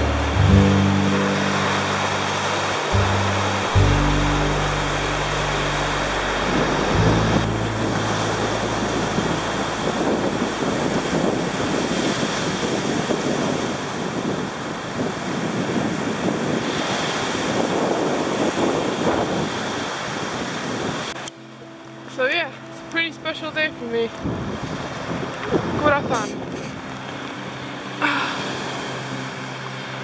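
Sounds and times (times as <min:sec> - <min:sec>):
surf breaking on beach: 0:00.0 - 0:21.2
wind on microphone: 0:00.0 - 0:21.2, 0:24.0 - 0:27.1.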